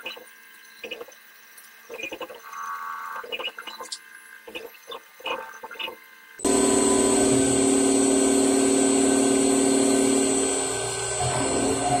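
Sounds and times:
low hum: 0:06.4 - 0:12.0
metal cutting noise: 0:06.4 - 0:12.0
milling machine spindle whine: 0:06.4 - 0:12.0.

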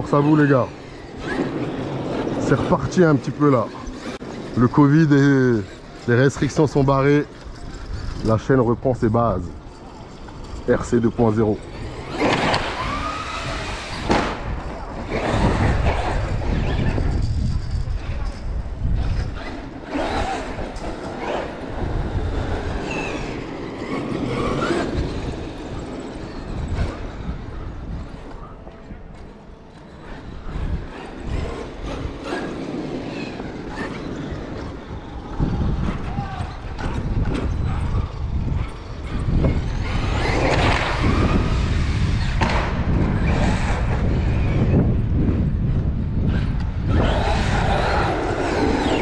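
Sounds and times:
electric motor whine: 0:11.8 - 0:14.1.

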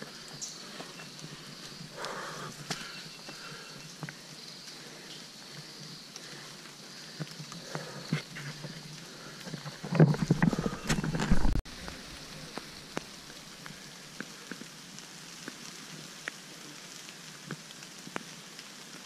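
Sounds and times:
light rain hiss: 0:00.0 - 0:19.0
raindrops ticking: 0:00.0 - 0:19.0
rumble on microphone: 0:07.0 - 0:14.8.

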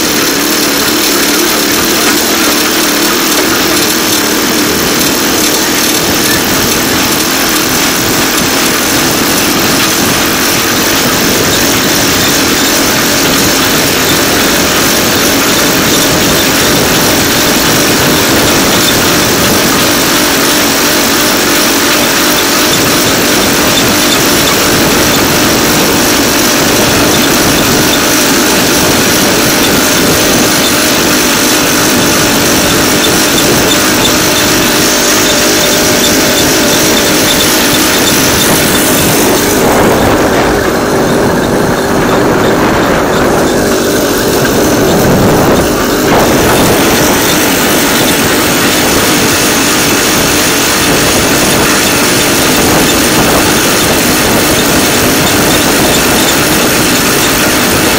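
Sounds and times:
rail vehicle engine droning: 0:00.0 - 0:57.9
wheels rolling on track: 0:00.0 - 0:57.9.

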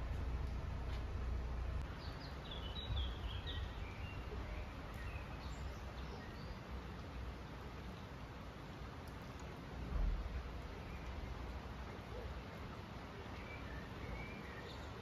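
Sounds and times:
low background rumble: 0:00.0 - 0:04.7
bird chirping: 0:01.8 - 0:06.7, 0:13.2 - 0:15.0.

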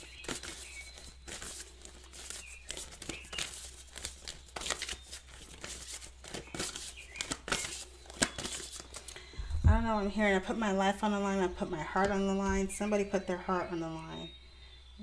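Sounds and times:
cards shuffled by hand: 0:00.0 - 0:09.2.

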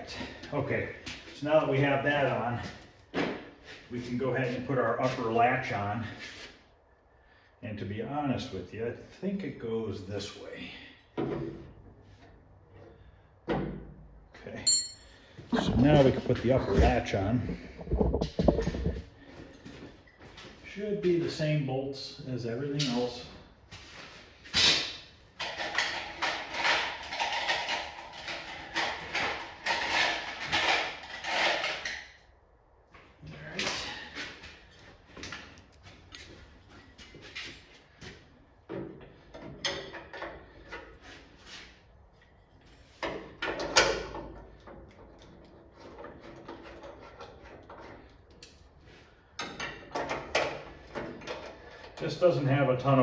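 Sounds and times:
metal tools and bolts clinking: 0:14.6 - 0:16.2.

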